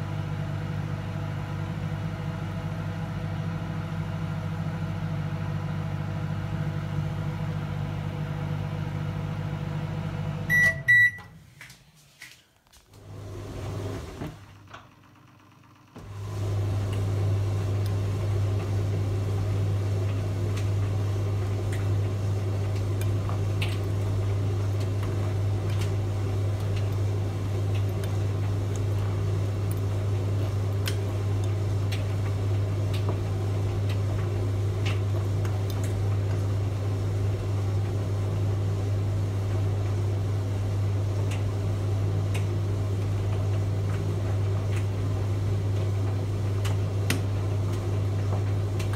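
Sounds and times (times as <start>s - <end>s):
microwave oven humming: 0.0s - 11.7s, 12.8s - 48.9s.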